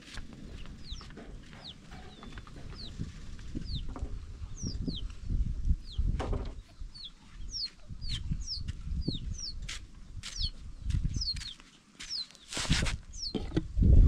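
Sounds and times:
footsteps on dry ground: 0.0s - 3.5s, 7.3s - 13.3s
bird chirping: 0.4s - 13.5s.

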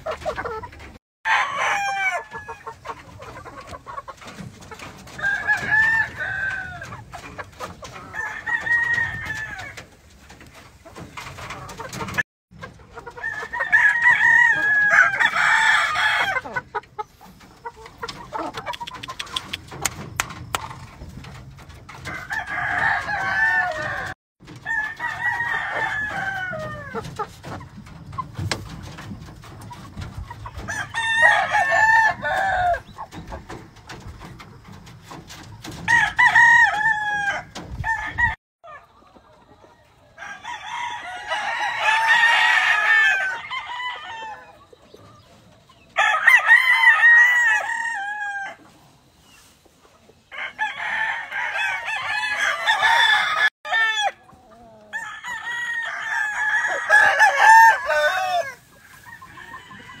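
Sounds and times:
roosters crowing: 1.3s - 2.9s, 5.0s - 9.9s, 13.0s - 16.8s, 21.9s - 27.2s, 30.5s - 34.0s, 35.6s - 38.8s, 40.0s - 44.8s, 45.8s - 48.8s, 50.2s - 60.0s.

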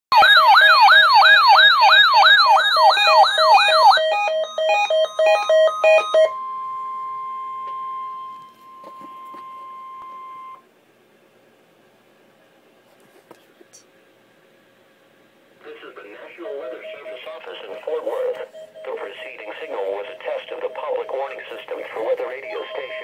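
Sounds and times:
steady alarm tone: 0.1s - 10.6s, 16.2s - 23.0s
siren-like whoop: 0.2s - 6.4s
pulsed beeping: 16.3s - 23.0s.

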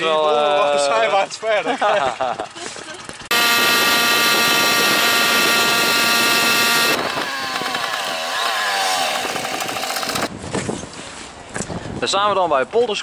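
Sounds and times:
moped engine buzzing: 3.2s - 10.3s.

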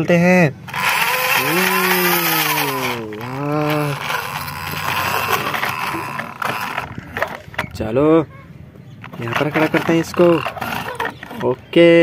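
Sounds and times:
man humming engine noise: 0.6s - 7.6s, 9.2s - 11.7s
toy wheels scraping on concrete: 0.6s - 7.8s, 9.0s - 12.0s.

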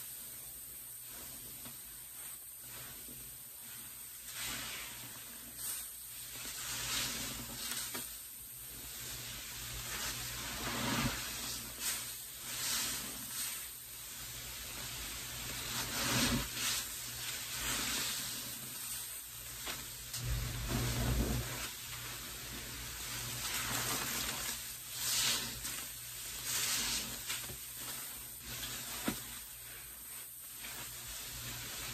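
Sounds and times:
sponges squeezed in suds: 15.5s - 21.8s, 23.2s - 31.9s.

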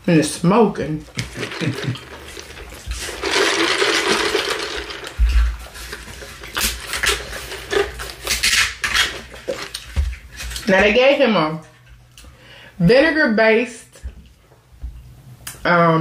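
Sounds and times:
foam cups handled: 1.1s - 10.8s.

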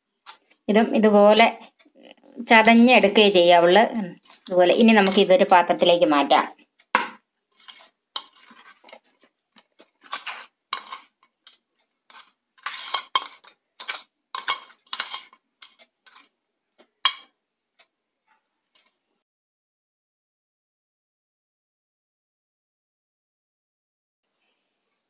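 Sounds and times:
spoon scraping metal bowl: 4.2s - 5.5s, 7.5s - 16.3s.

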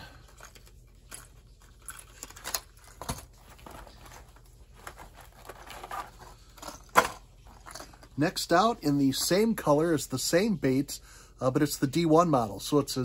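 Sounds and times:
plastic packaging handled: 0.0s - 8.3s.

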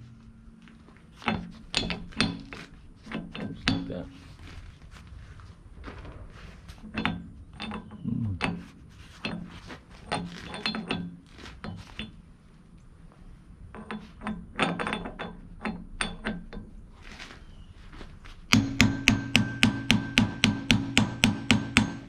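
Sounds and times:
metal parts clinking: 9.2s - 12.2s
hammer striking steel: 18.5s - 22.0s.

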